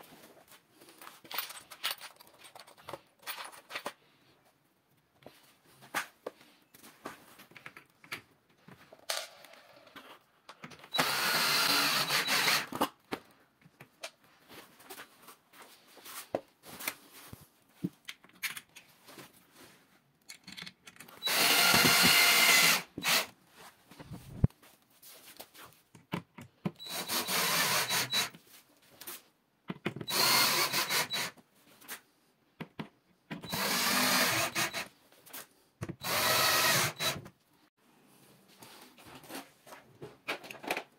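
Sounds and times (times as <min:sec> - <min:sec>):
cordless drill driving screws: 0:10.9 - 0:12.9, 0:21.2 - 0:23.3, 0:26.8 - 0:28.3, 0:30.0 - 0:31.4, 0:33.4 - 0:34.9, 0:36.0 - 0:37.3.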